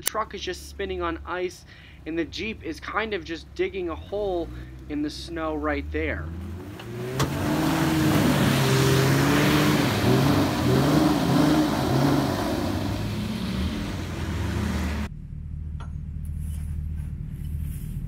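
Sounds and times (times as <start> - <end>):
low engine rumble: 0.0 - 18.0
engines revving hard: 4.2 - 15.1.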